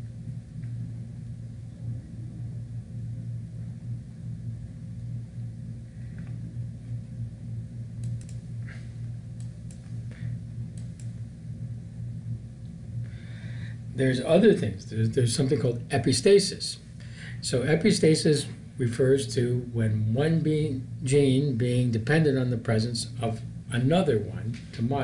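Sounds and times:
low background hum: 0.0s - 25.0s
faint short clicks: 8.0s - 8.4s.

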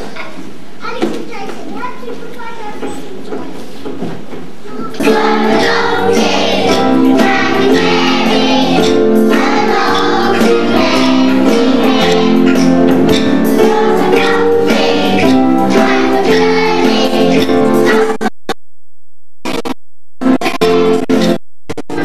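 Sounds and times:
children singing together: 4.9s - 18.2s
music with steady beat: 5.0s - 18.4s.

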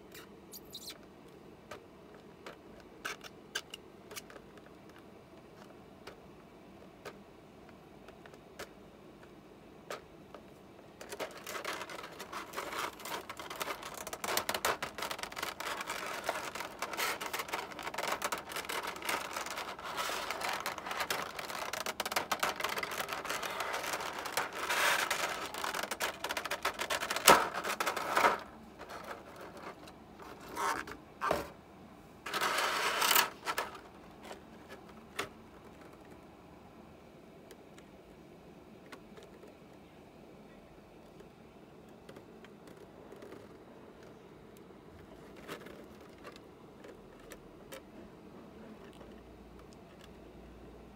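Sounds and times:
plastic tray crinkling: 9.9s - 31.5s, 32.3s - 36.2s, 45.0s - 47.8s.

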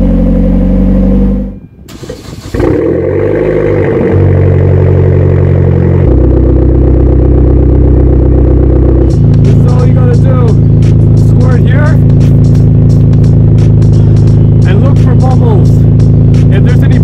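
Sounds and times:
car engine running: 0.0s - 17.0s
engine starting: 1.9s - 3.0s
loud cold idle: 1.9s - 17.0s.

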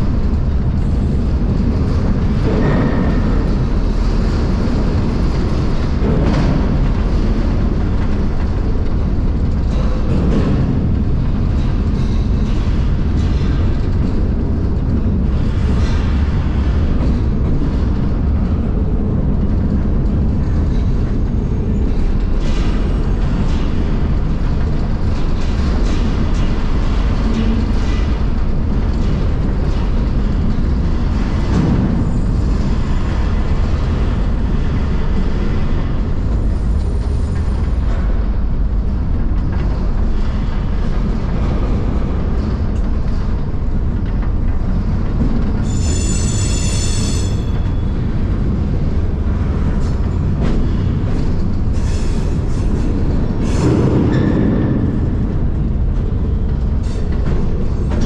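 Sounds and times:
freight car rumble and rattle: 0.0s - 58.0s
high-pitched metal squeal: 45.6s - 47.7s.

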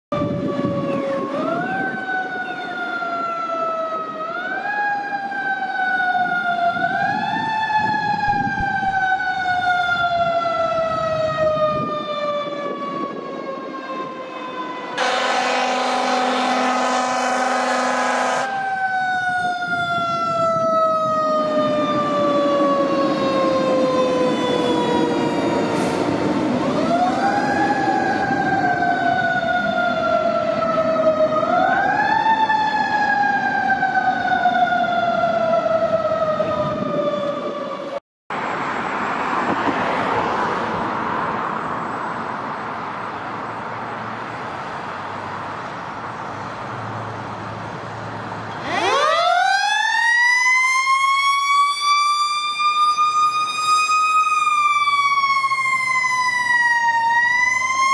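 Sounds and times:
fire truck siren wailing: 0.1s - 38.0s, 46.4s - 57.9s
loud horn blast: 15.0s - 18.6s.

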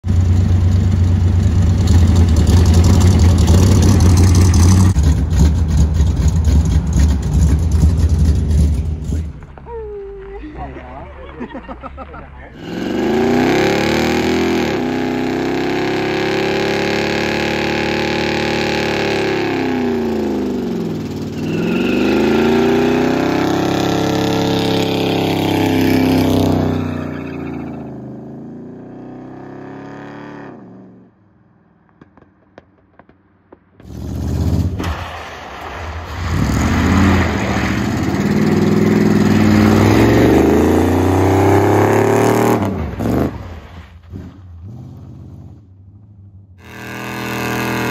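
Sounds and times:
car engine revving: 0.1s - 9.6s, 12.5s - 31.2s, 35.8s - 47.9s
car sliding on gravel: 33.8s - 40.5s, 42.6s - 45.6s.

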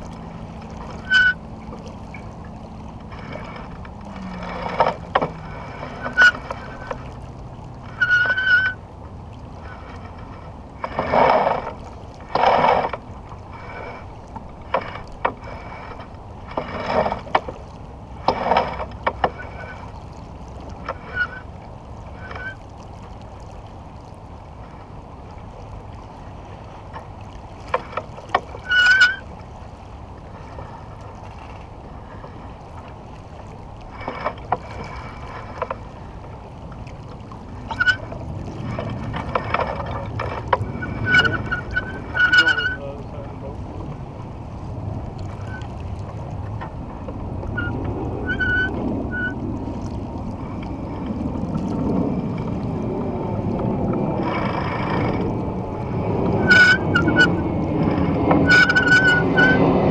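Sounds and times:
water rushing along hull: 0.0s - 59.9s
short high squeaks: 0.7s - 2.4s, 3.1s - 7.2s, 7.8s - 8.8s, 20.8s - 21.5s, 22.1s - 22.6s, 27.8s - 29.3s, 37.6s - 43.0s, 45.3s - 45.8s, 47.5s - 49.4s, 56.3s - 59.8s.

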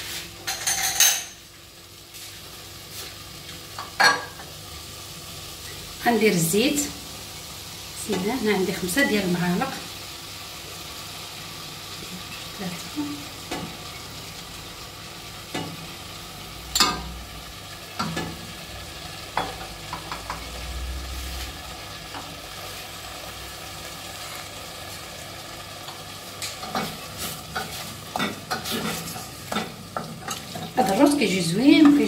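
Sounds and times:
food sizzling in oil: 0.0s - 32.0s
wooden spoon stirring and scraping: 26.4s - 31.1s.

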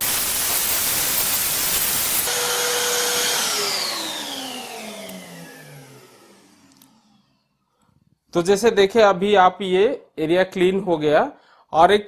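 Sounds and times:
vacuum cleaner air rush: 0.0s - 7.3s
vacuum motor whine running down: 0.1s - 7.5s.

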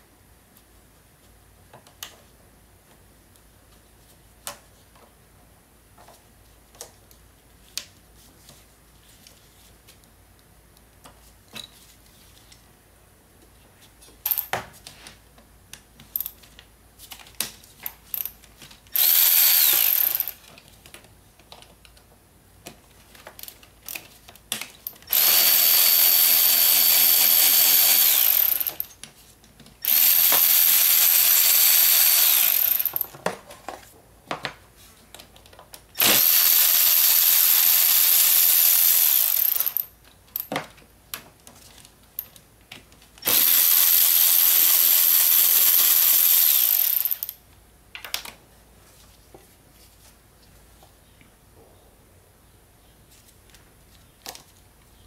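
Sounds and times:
electric ratchet whining: 19.0s - 20.4s, 25.1s - 28.9s, 29.8s - 33.1s, 36.0s - 39.9s, 43.2s - 47.4s.

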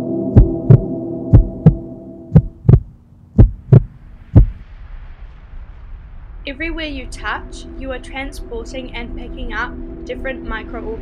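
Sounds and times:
steady droning hum: 0.0s - 11.0s
heartbeat thumps: 0.3s - 4.6s.

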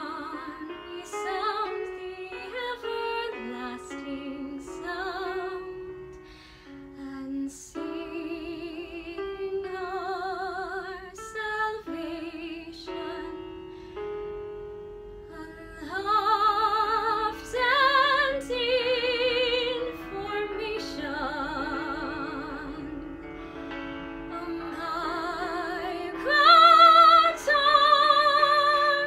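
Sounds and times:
woman singing with vibrato: 0.0s - 5.8s, 15.3s - 23.1s, 24.3s - 29.0s.

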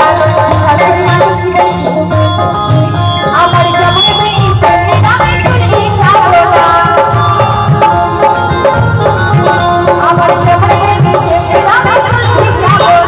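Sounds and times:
folk band music through speakers: 0.0s - 13.0s
hand drums: 0.0s - 13.0s.

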